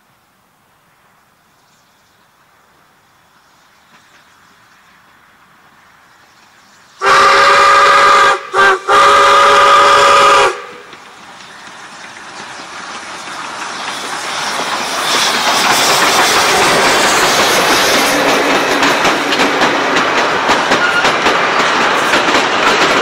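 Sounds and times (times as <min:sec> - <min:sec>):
train hissing and clattering: 0:00.0 - 0:23.0
steam locomotive whistle: 0:07.0 - 0:11.0, 0:20.6 - 0:21.3.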